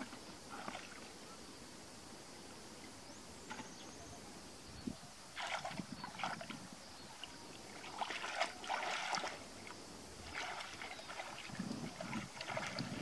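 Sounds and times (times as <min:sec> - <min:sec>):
hands splashing in muddy water: 0:05.4 - 0:06.6, 0:07.8 - 0:09.4, 0:10.2 - 0:13.0.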